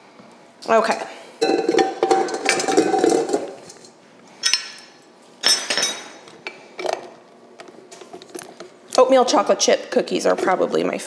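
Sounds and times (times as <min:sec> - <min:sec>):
metal bowl clinks: 0:00.8 - 0:03.5.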